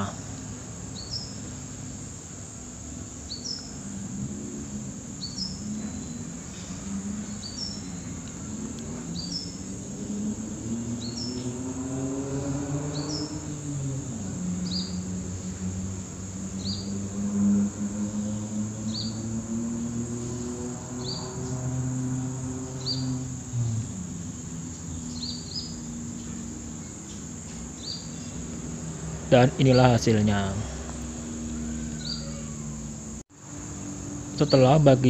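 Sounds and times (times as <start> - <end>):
high-pitched insect drone: 0.0 - 35.0.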